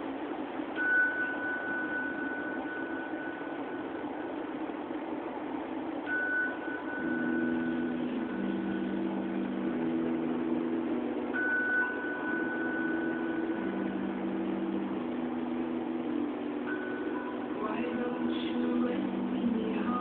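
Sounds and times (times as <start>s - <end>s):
thin high held tone: 0.6s - 4.7s, 6.0s - 20.0s
ambient drone music: 6.6s - 20.0s.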